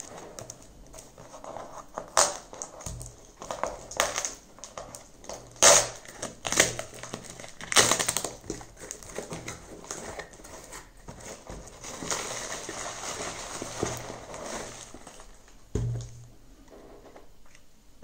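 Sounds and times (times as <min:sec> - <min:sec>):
cardboard scraping and crackling: 0:05.6 - 0:15.5
paper packing rustling: 0:05.8 - 0:15.6.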